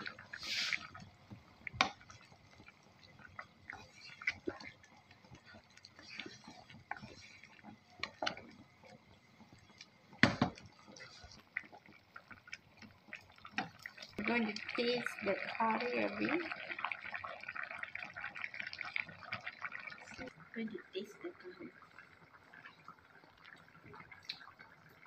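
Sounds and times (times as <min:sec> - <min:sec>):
wooden spatula stirring: 0:00.0 - 0:20.2
curry bubbling in a pan: 0:00.0 - 0:25.0
knock: 0:10.2 - 0:10.6.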